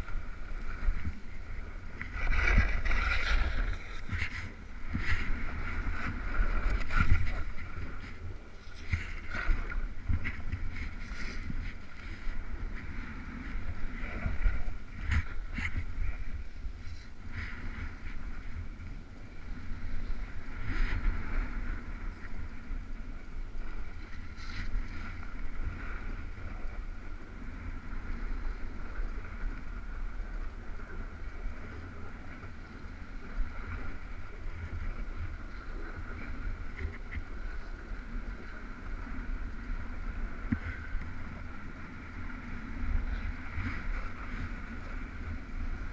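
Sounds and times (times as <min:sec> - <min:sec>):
sled sliding over snow: 0:00.0 - 0:16.4
wind buffeting microphone: 0:00.0 - 0:45.9.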